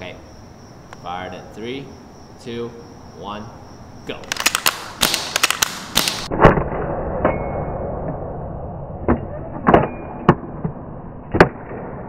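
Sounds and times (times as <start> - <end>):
airsoft rifle bolt racking and shots: 4.2 - 6.3.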